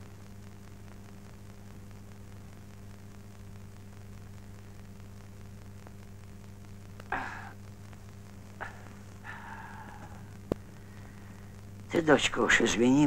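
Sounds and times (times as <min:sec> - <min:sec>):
low hum of film soundtrack: 0:00.0 - 0:13.0
breathy sigh: 0:07.1 - 0:07.6, 0:08.6 - 0:11.6.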